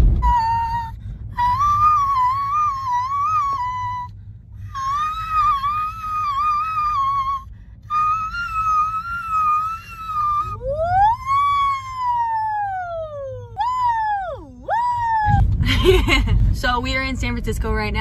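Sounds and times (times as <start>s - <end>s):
low car rumble: 0.0s - 18.0s.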